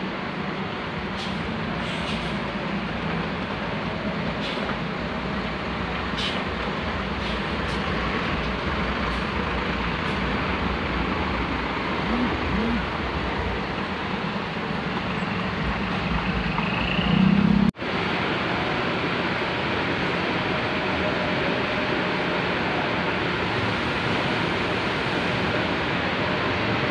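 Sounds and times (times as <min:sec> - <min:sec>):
bus diesel engine droning: 0:00.0 - 0:26.9.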